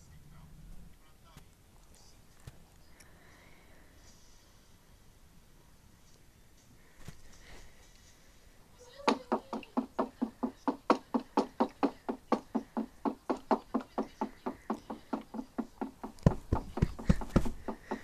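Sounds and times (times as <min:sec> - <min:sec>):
fast even knocking: 0:09.1 - 0:18.0
heavy deep thumps: 0:15.0 - 0:18.0.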